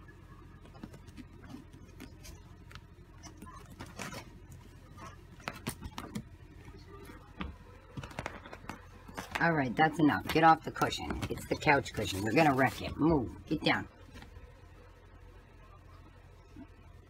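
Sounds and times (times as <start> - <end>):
claws scratching fabric: 0.7 - 6.2.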